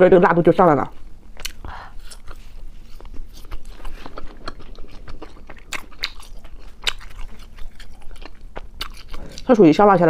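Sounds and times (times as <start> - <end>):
chewing mouth clicks: 3.0 - 9.5.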